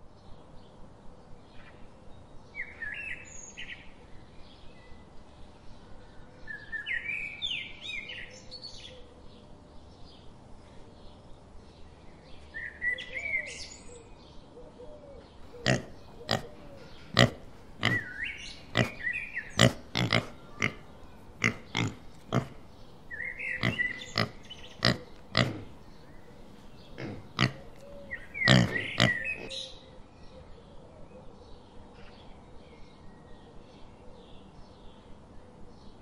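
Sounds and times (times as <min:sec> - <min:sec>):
birds chirping: 0:15.1 - 0:30.0
piglets squealing and grunting: 0:15.5 - 0:29.6.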